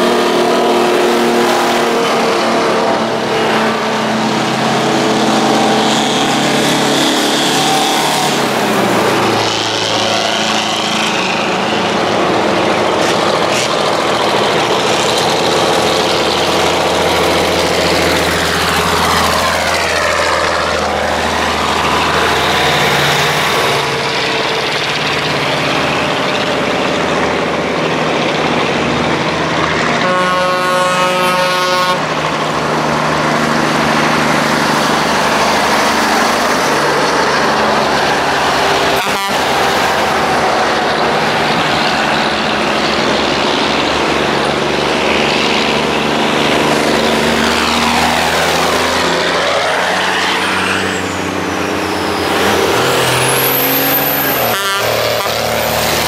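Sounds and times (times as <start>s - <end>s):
truck air horn: 0.0s - 4.1s, 29.9s - 32.1s, 38.9s - 40.1s, 54.1s - 55.7s
heavy truck engines running: 0.0s - 56.0s.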